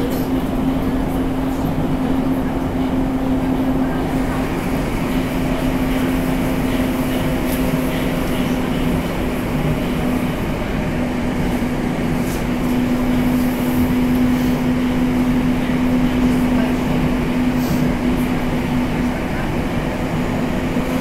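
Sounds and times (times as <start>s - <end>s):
train rumble inside passenger car: 0.0s - 21.0s.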